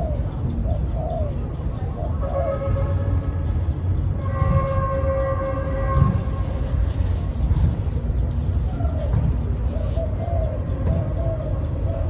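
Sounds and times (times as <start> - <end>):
dove cooing: 0.0 - 2.6, 5.7 - 12.0
long steady horn-like tone: 2.1 - 8.4.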